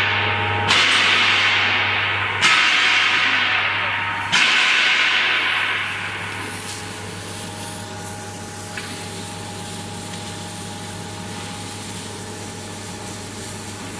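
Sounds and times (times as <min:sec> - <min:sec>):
steady hiss: 0:05.8 - 0:13.9.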